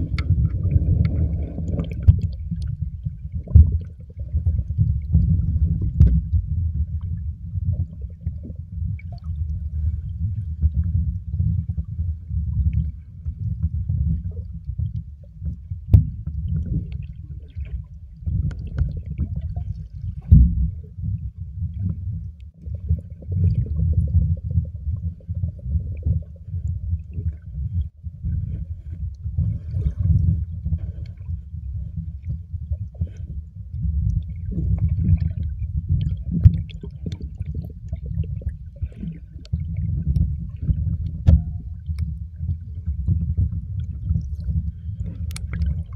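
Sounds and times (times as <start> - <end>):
underwater rumble of water: 0.0 - 45.9.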